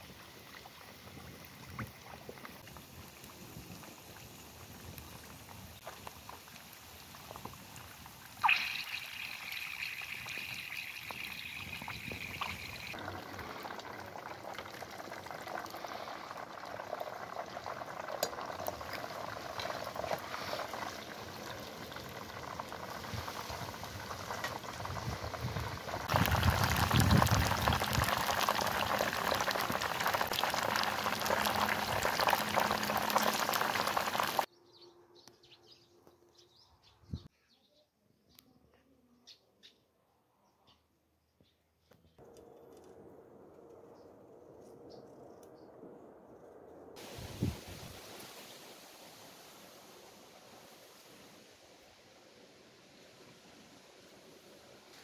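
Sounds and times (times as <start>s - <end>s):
oil sizzling while deep-frying: 2.6s - 34.5s, 47.0s - 51.8s.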